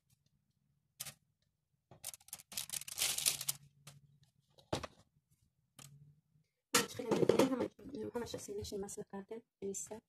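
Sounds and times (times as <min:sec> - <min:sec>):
parchment paper rustling: 0:02.0 - 0:04.6.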